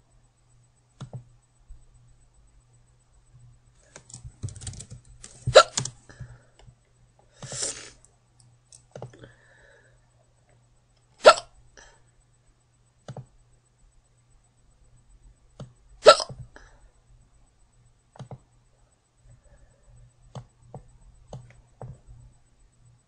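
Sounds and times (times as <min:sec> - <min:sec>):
girl hiccuping: 0:11.2 - 0:11.5, 0:16.0 - 0:16.4.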